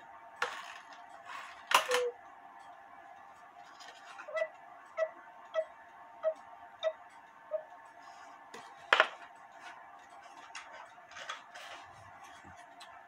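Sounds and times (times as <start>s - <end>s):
cuckoo clock ticking: 1.8s - 2.2s, 4.3s - 7.9s.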